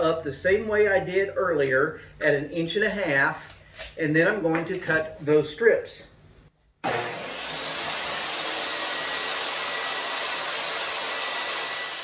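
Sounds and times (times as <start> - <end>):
table saw motor whine: 6.8 - 12.0.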